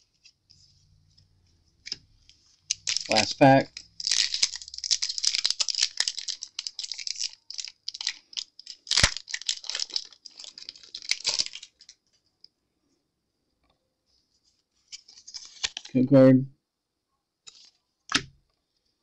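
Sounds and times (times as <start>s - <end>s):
foil wrapper tearing and crinkling: 2.7s - 12.0s, 14.9s - 15.9s.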